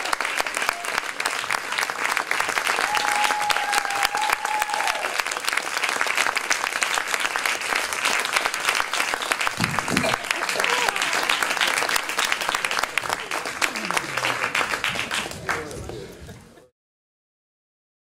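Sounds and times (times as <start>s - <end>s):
audience applauding: 0.0s - 16.7s
person cheering: 2.8s - 5.2s, 9.6s - 11.9s.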